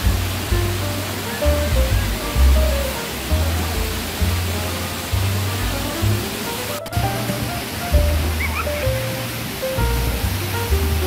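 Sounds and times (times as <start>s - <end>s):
background music with deep bass: 0.0s - 11.0s
waterfall rushing: 0.0s - 11.0s.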